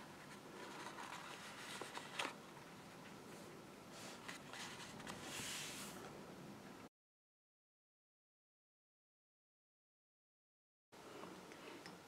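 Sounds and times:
paper box rustling: 0.3 - 2.4.

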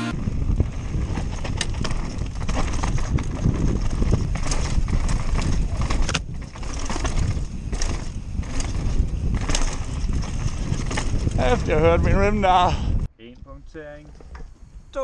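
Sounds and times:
wind rumble on microphone: 0.1 - 15.0
bike rattling: 0.2 - 13.1, 13.7 - 15.0
tyres crunching over stones: 0.7 - 11.8.

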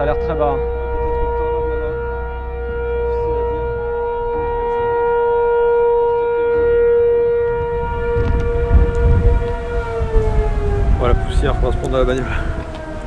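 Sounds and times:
gusty low rumble: 0.0 - 13.0
warning siren wailing: 0.0 - 13.0.

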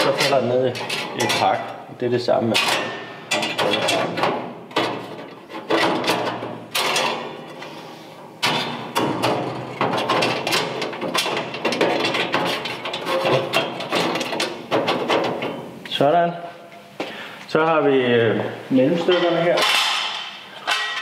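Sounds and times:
metal knocks and scrapes: 0.0 - 1.7, 2.5 - 7.7, 8.3 - 15.8.

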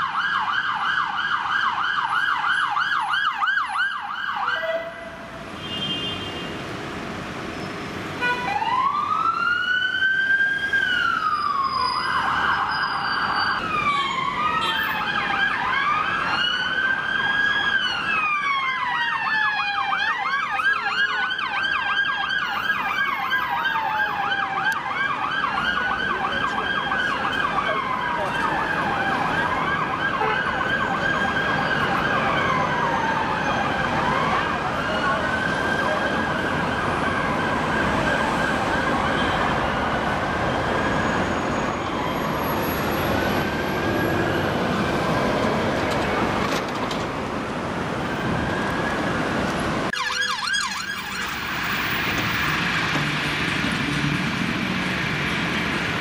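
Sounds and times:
siren yelping: 0.0 - 5.2, 8.4 - 42.3, 48.0 - 52.5
siren wailing: 8.4 - 45.2, 47.9 - 53.4
siren warble: 49.9 - 52.0.

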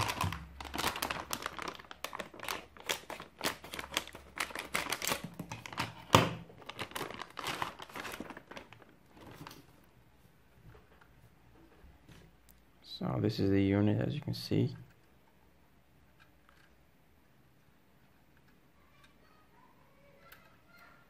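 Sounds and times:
plastic bag crinkling: 0.0 - 9.8.

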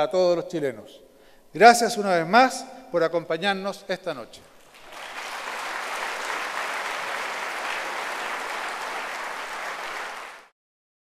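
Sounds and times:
audience applauding: 4.6 - 10.5.

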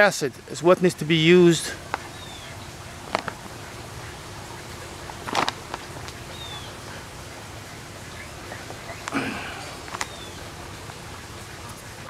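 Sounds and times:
quiet outdoor background noise: 0.0 - 12.0
plastic bag rustling: 5.2 - 6.2.

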